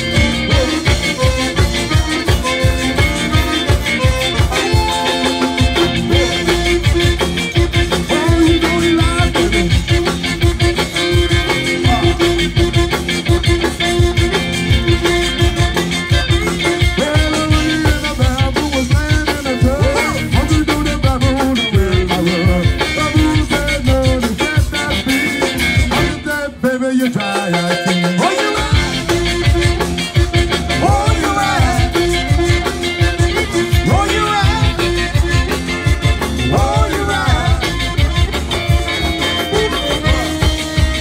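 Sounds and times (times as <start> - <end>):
man singing: 0.0 - 1.4, 5.8 - 12.7, 16.6 - 41.0
accordion holding long note: 0.0 - 18.1, 28.3 - 41.0
drum beat: 0.0 - 26.3, 27.9 - 41.0
guitar: 0.0 - 41.0.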